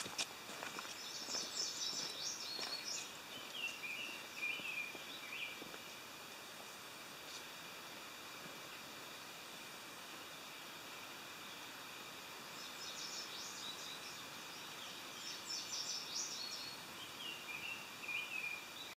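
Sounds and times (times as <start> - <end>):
steady hiss: 0.0 - 19.0
songbirds singing: 0.6 - 6.2, 10.1 - 19.0.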